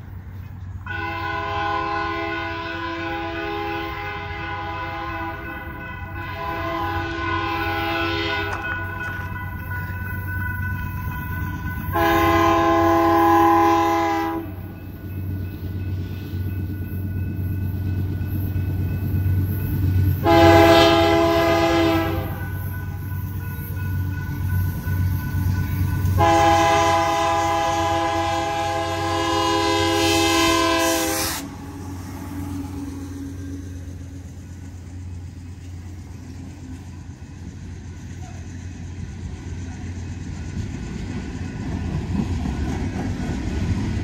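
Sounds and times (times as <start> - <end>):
locomotive air horn blasts: 0.9 - 9.4, 11.9 - 14.6, 20.2 - 22.6, 26.0 - 32.8.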